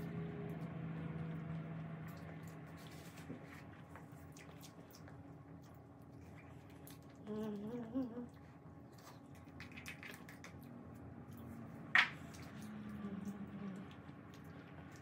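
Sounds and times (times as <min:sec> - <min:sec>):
spoon and mouth eating noises: 0:04.2 - 0:15.0.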